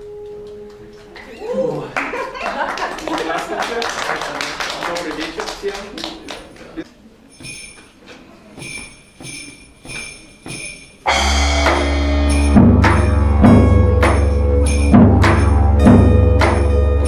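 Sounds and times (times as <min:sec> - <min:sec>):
deep drum hits: 0:11.1 - 0:17.0
didgeridoo drone: 0:11.1 - 0:17.0.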